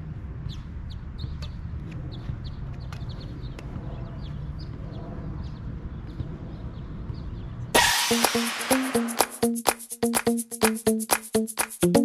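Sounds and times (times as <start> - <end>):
small birds chirping: 0.4 - 7.7.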